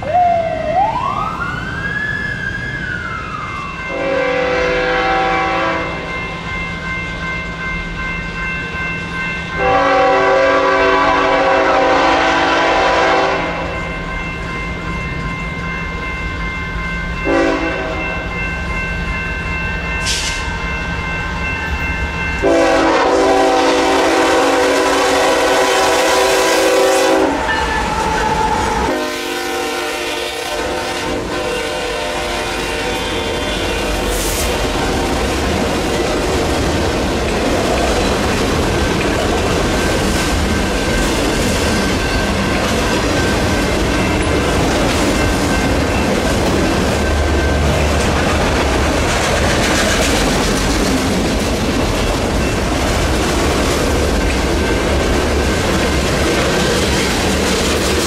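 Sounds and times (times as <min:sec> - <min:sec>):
locomotive engines rumbling: 0:00.0 - 0:58.0
locomotive air horn blasts: 0:03.9 - 0:06.0, 0:09.6 - 0:13.8, 0:17.3 - 0:18.2, 0:22.4 - 0:27.6, 0:28.8 - 0:34.9.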